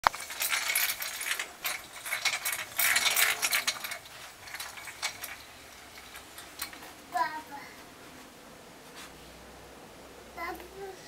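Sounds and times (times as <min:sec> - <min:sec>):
toy rattling ratchet clicks: 0:00.0 - 0:06.8.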